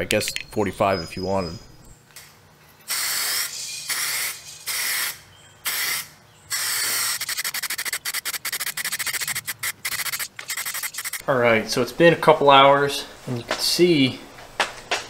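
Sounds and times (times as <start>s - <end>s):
aerosol can spraying hiss: 2.9s - 11.2s.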